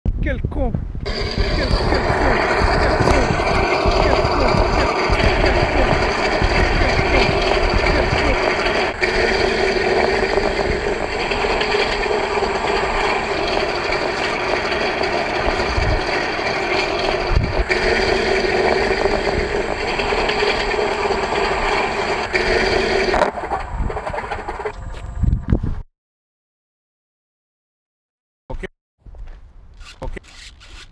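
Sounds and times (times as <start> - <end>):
model aircraft engine running: 1.1 - 25.0.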